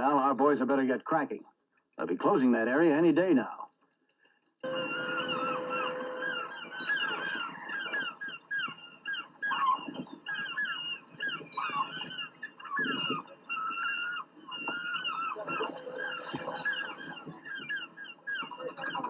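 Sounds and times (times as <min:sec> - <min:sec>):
gulls calling: 0:04.6 - 0:19.0.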